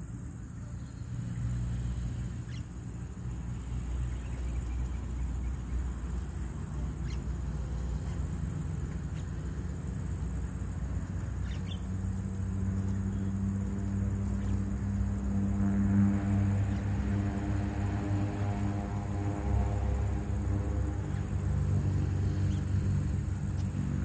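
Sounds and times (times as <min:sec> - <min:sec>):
low outdoor rumble: 0:00.0 - 0:24.0
faint bird chirps: 0:02.4 - 0:02.7, 0:07.0 - 0:07.3, 0:11.4 - 0:11.9.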